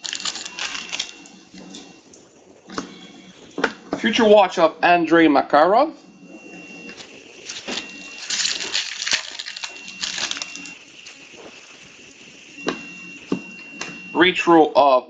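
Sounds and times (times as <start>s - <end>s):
foil wrapper crinkling and tearing: 0.0s - 1.2s, 7.4s - 10.8s.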